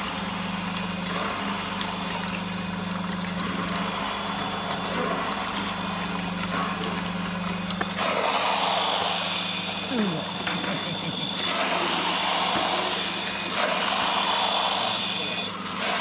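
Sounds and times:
slurry pouring into metal bucket: 0.8s - 14.4s
electric motor humming: 3.3s - 16.0s.

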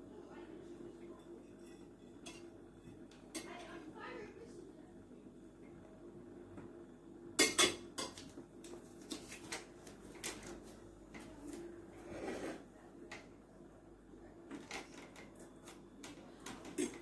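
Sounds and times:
metal fork clinking on plate: 7.4s - 8.2s.

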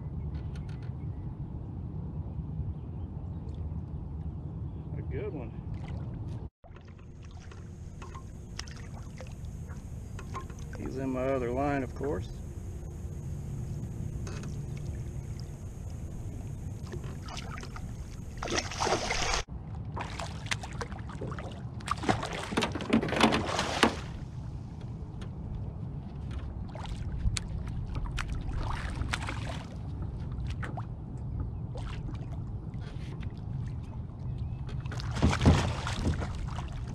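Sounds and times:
steady low rumble: 0.0s - 21.9s, 24.2s - 34.9s
fish thrashing and splashing: 16.8s - 24.1s.

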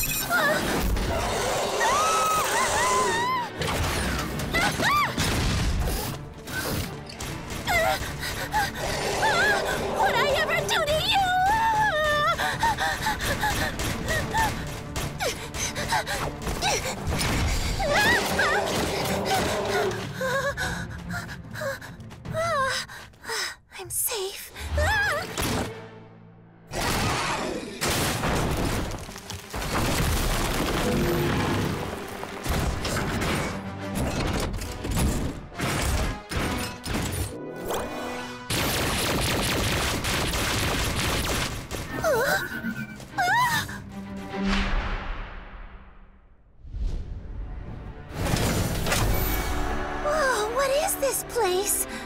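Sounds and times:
background music: 0.0s - 52.0s
girl gasping and crying out: 11.4s - 25.3s, 43.2s - 43.9s
rocks crashing and rumbling: 27.8s - 33.3s.

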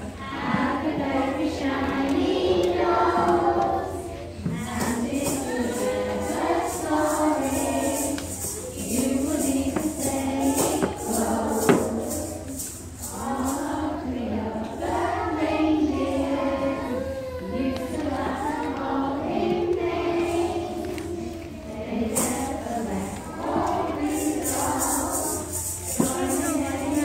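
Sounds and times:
group singing: 0.0s - 27.0s
jingling percussion shaken: 4.5s - 16.9s, 20.0s - 27.0s.

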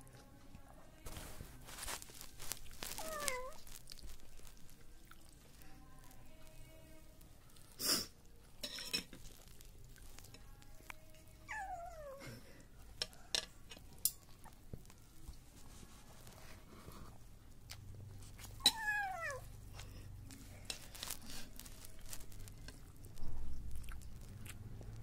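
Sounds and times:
short rustles: 1.1s - 4.4s
kitten meowing: 2.9s - 3.6s
sharp clicks of eating: 22.0s - 25.0s.

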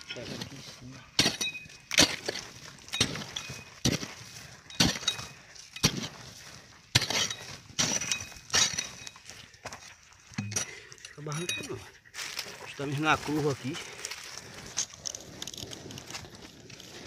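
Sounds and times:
metal tool striking hard earth: 0.0s - 12.4s.

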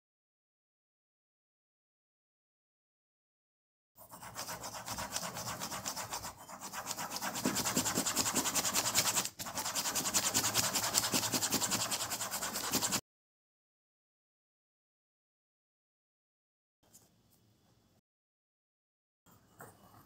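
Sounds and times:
pen scratching on paper: 4.0s - 13.0s.

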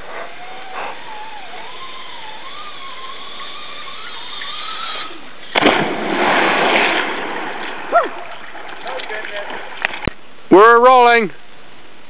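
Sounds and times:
zipline pulley whine: 0.0s - 5.6s
body smacking water: 5.5s - 10.1s
loud splash: 5.5s - 10.1s.

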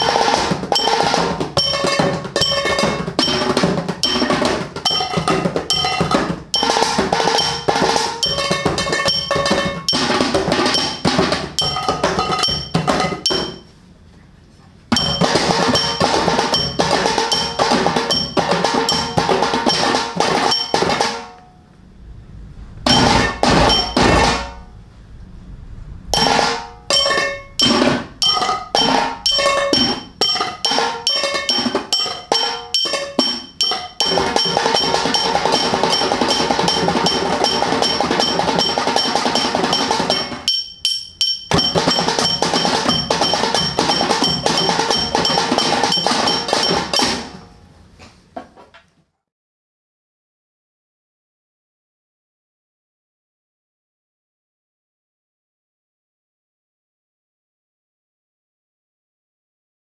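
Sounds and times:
hands drumming on metal tins: 0.0s - 13.6s, 15.0s - 21.3s, 22.9s - 24.6s, 26.2s - 47.4s
bottles played as percussion: 0.0s - 13.7s, 14.9s - 21.4s, 22.9s - 24.6s, 26.2s - 47.4s.

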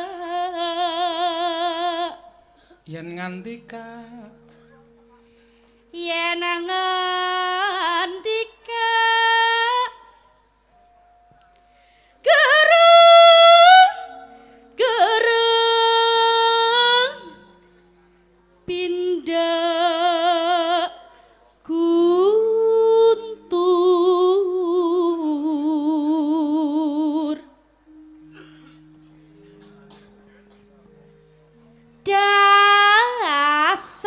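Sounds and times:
woman singing with vibrato: 0.0s - 3.0s, 5.8s - 10.2s, 12.2s - 17.7s, 18.6s - 29.5s, 31.8s - 34.0s
faint held instrument notes: 0.0s - 34.0s.

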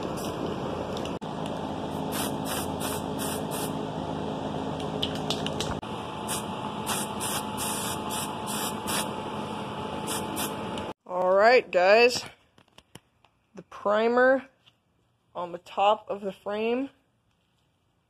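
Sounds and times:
steady background hum: 0.0s - 11.0s
aerosol can spraying: 2.0s - 3.7s, 6.3s - 9.1s, 10.0s - 10.6s.

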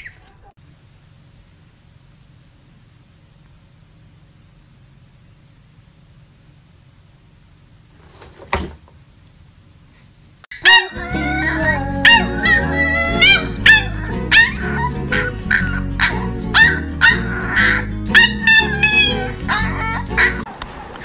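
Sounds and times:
puppy yipping: 0.0s - 0.5s, 10.5s - 20.4s
low hum: 0.0s - 21.0s
faint click: 3.4s - 3.6s
music with steady beat: 11.0s - 19.7s.

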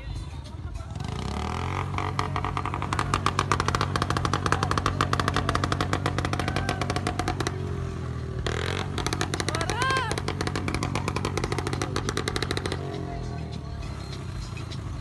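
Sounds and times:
motorcycle exhaust beats: 0.0s - 15.0s.

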